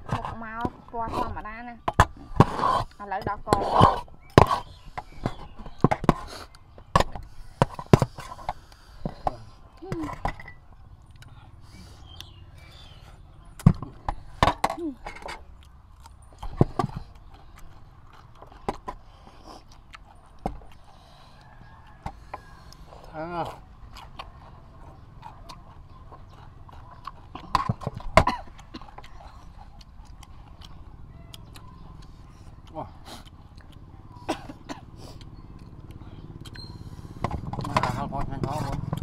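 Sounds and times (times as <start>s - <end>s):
chewing and slurping noodles: 10.9s - 14.4s, 15.1s - 39.0s.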